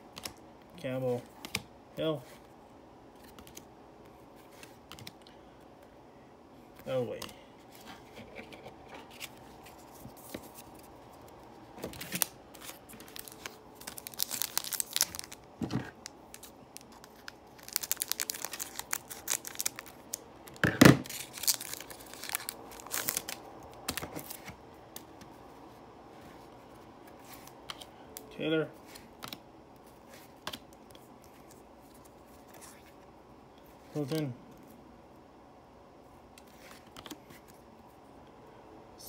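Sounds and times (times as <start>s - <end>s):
foil wrapper crinkling and tearing: 12.0s - 20.2s, 21.0s - 24.4s.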